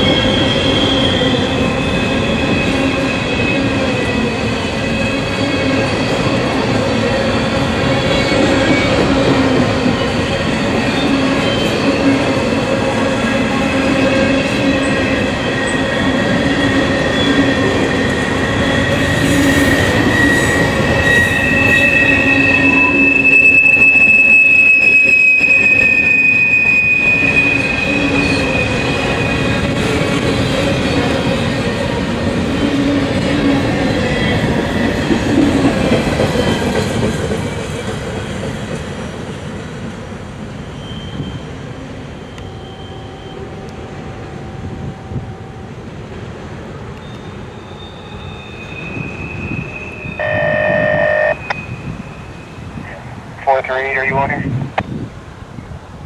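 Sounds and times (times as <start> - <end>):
high wheel squeal: 0.0 - 3.6, 13.2 - 29.8, 40.6 - 43.6, 47.0 - 53.0
train wheels rumbling and clattering: 0.0 - 25.9, 27.0 - 42.6.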